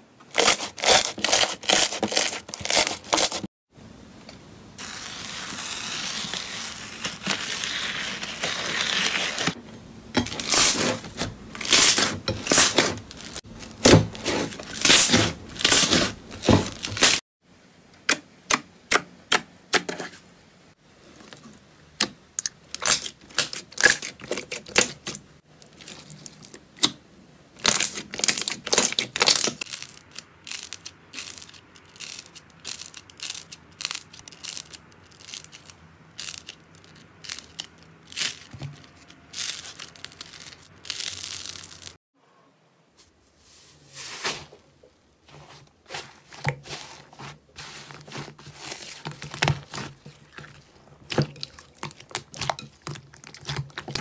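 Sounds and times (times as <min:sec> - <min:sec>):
foam slime crunching and crackling: 0:00.3 - 0:03.5, 0:04.8 - 0:09.6, 0:10.3 - 0:17.2, 0:27.6 - 0:42.0, 0:45.2 - 0:54.0.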